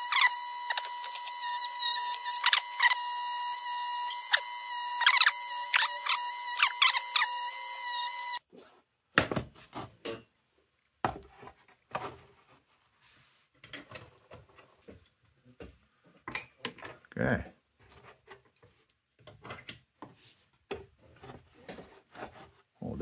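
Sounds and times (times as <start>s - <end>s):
high-pitched whine with squeals: 0.0s - 8.4s.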